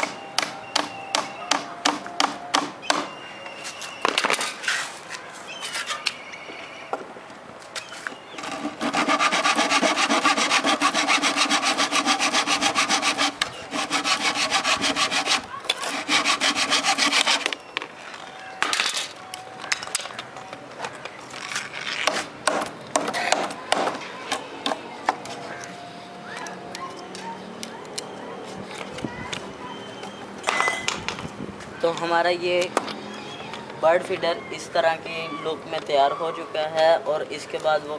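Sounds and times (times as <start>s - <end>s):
hammer blows on wooden box: 0.0s - 3.2s
hand saw cutting wood: 8.4s - 17.6s.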